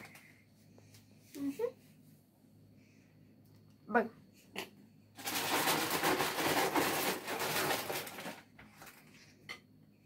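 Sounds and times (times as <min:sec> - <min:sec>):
plastic sleeve crinkling: 0:05.2 - 0:09.1.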